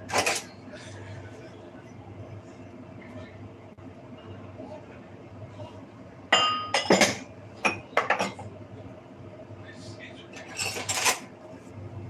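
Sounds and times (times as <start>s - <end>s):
glass dishes clinking: 6.3s - 8.5s.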